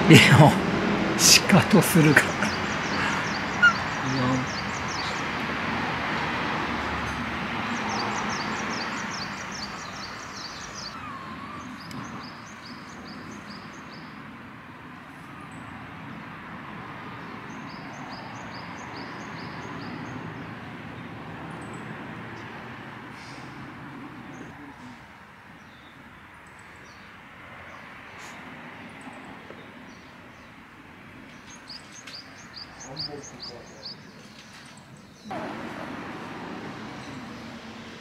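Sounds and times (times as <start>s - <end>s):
rushing background noise: 0.0s - 25.2s, 31.1s - 38.0s
songbird chirping: 1.2s - 16.2s, 17.0s - 23.5s, 24.1s - 38.0s.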